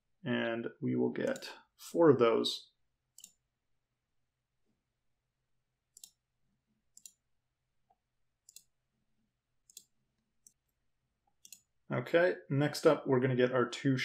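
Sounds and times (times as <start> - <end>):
computer mouse clicking: 1.2 - 1.5, 3.1 - 3.4, 5.9 - 6.2, 6.9 - 7.2, 8.4 - 8.7, 9.6 - 10.7, 11.3 - 11.7.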